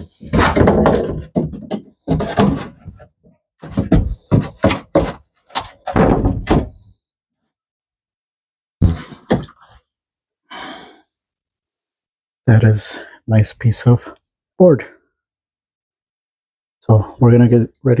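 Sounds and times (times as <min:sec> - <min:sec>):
plywood board thunking: 0:00.0 - 0:06.9.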